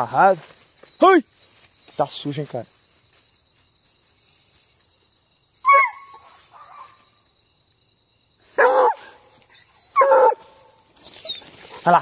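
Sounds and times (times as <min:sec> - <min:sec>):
dog yelping and crying: 0:05.6 - 0:07.0, 0:08.6 - 0:12.0.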